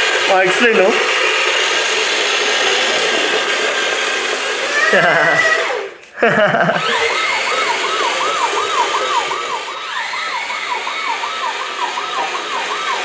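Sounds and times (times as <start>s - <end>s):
toy electronic siren wailing: 6.8s - 13.0s.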